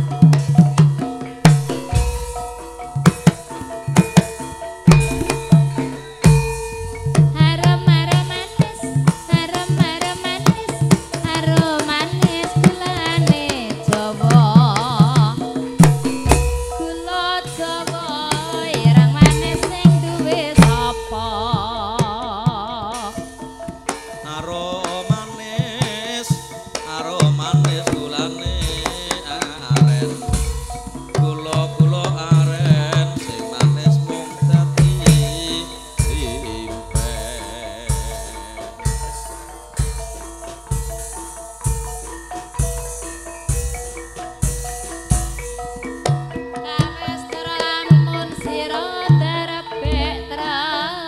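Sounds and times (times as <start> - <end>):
hand drums beating: 0.0 - 51.0
ringing metallophone tones: 0.0 - 51.0
person singing: 3.6 - 23.5, 24.2 - 40.0, 46.6 - 51.0.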